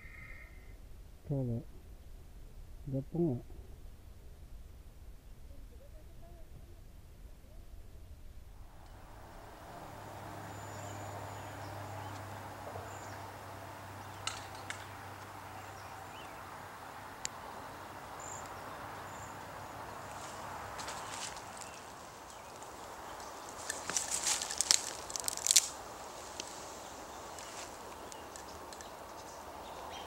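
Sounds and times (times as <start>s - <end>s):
steady background hiss: 0.0s - 30.0s
small birds chirping: 8.8s - 30.0s.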